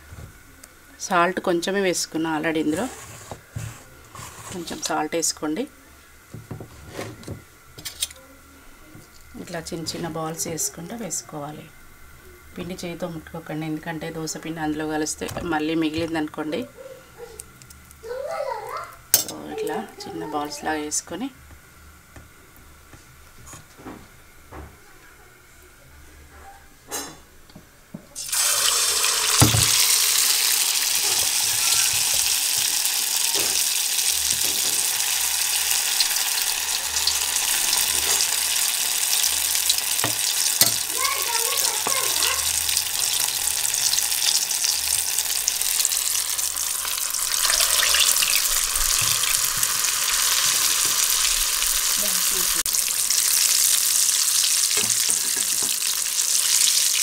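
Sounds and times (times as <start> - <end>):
food deep-frying in hot oil: 28.2 - 57.0.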